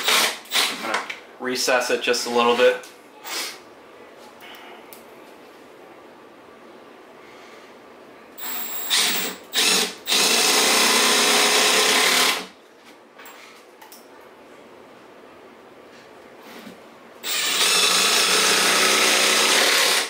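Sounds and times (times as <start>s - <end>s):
cordless drill running: 8.4s - 12.5s, 17.2s - 20.0s.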